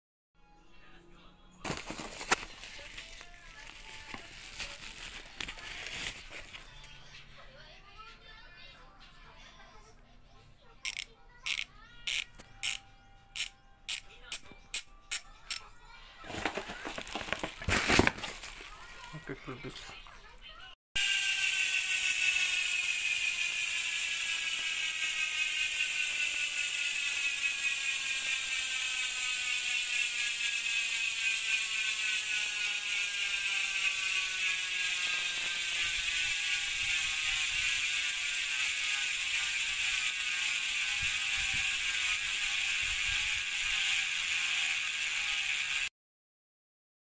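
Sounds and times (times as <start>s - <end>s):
bicycle hub ratcheting buzz: 10.8s - 15.7s, 21.0s - 45.9s.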